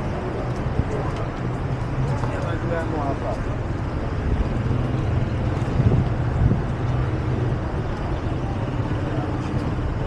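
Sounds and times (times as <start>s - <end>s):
city street traffic rumble: 0.0s - 10.0s.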